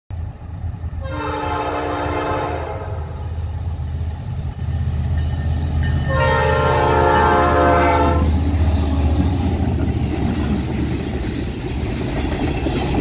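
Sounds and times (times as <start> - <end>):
locomotive air horn blasts: 1.0 - 3.4, 6.1 - 8.4.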